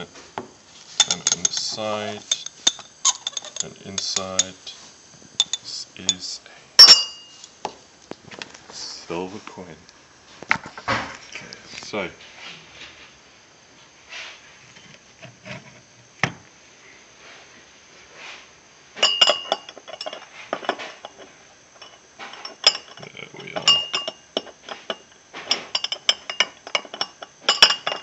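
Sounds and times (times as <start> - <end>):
metal tongs clinking on glass: 1.0 - 4.6, 19.0 - 20.7, 21.8 - 28.0.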